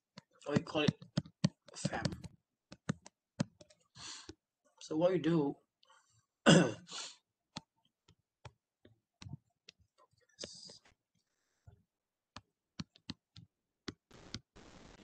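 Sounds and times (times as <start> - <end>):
mouse clicks and taps: 0.1 - 3.8, 12.3 - 14.0.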